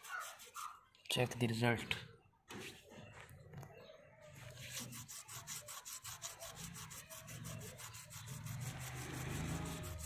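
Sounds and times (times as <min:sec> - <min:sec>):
hand scrubbing a metal rim: 0:04.6 - 0:10.0.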